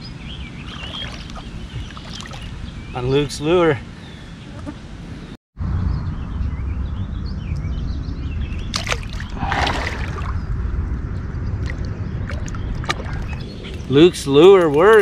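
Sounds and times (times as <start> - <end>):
water sloshing and splashing: 0.6 - 2.6, 8.7 - 10.5, 11.6 - 13.8
steady low rumble: 5.6 - 15.0.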